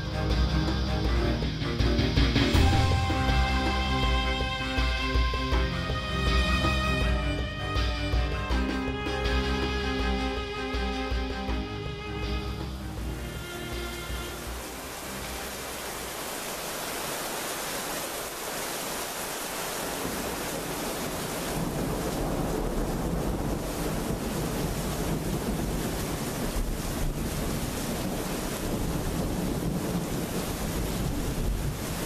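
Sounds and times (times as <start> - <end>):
heavy rain falling: 0.0 - 32.0
low thunder rumble: 20.0 - 32.0
wind buffeting microphone: 20.1 - 32.0.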